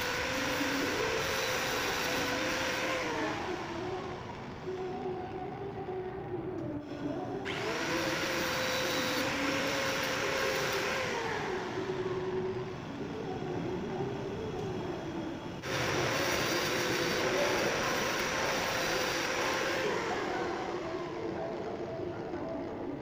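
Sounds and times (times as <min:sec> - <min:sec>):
grinder disc grinding steel: 0:00.0 - 0:04.1, 0:15.6 - 0:20.8
angle grinder motor whine: 0:00.0 - 0:05.2, 0:06.9 - 0:21.8.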